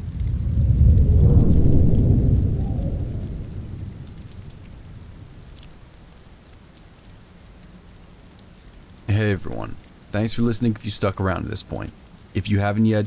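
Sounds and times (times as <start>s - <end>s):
low rumble of thunder: 0.0s - 6.5s
steady rain falling: 0.0s - 13.0s.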